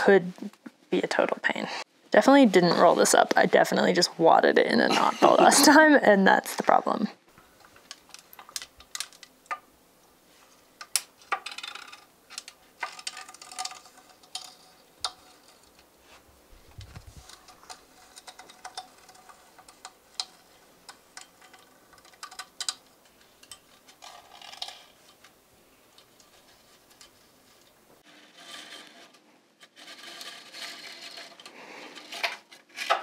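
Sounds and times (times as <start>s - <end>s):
small fittings clicking and rustling: 7.3s - 9.6s, 10.4s - 28.1s.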